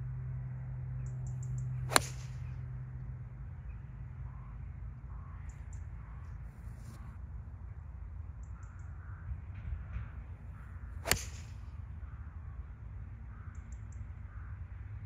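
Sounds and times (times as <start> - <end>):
golf club striking ball: 1.4 - 2.5, 11.0 - 11.8.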